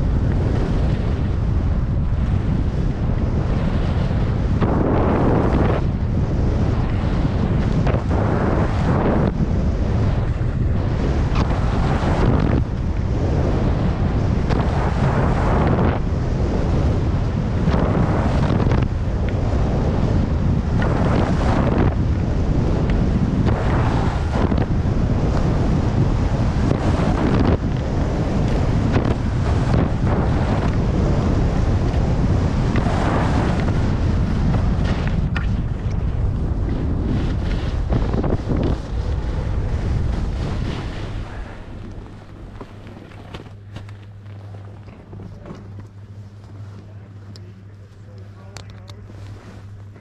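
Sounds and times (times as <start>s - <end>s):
wind rushing over microphone: 0.0s - 50.0s
skis scraping snow: 20.8s - 45.6s, 47.9s - 50.0s.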